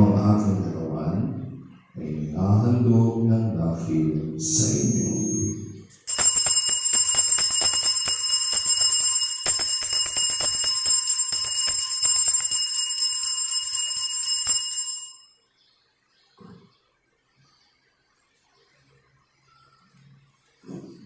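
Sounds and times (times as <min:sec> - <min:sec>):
altar bells jingling: 0:04.6 - 0:15.4.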